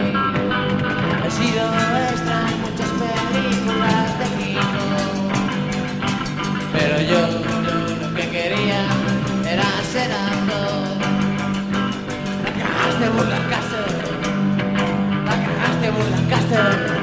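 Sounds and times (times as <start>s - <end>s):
bass guitar: 0.0s - 17.0s
guitar: 0.0s - 17.0s
steady drum beat: 0.9s - 16.9s
person singing: 1.1s - 5.9s, 6.6s - 11.3s, 12.4s - 14.3s, 15.3s - 17.0s.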